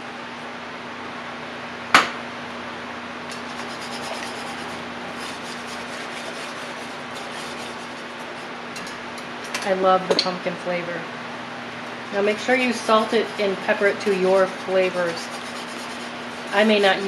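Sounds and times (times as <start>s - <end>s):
steady low hum: 0.0s - 17.0s
wire whisk scraping a pot: 3.3s - 9.0s, 12.2s - 17.0s.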